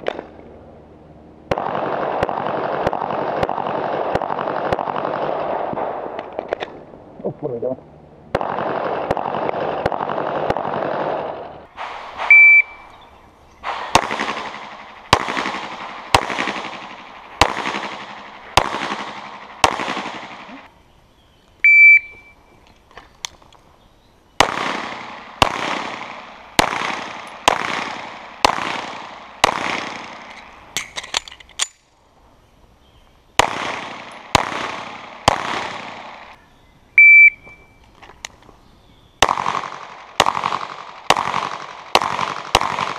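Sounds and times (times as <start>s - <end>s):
pistol shots echoing: 1.5s - 6.7s, 8.3s - 11.6s, 13.6s - 20.7s, 24.4s - 31.8s, 33.4s - 36.4s, 39.2s - 42.9s
high-pitched beeps: 12.3s - 12.9s, 21.6s - 22.4s, 37.0s - 37.8s.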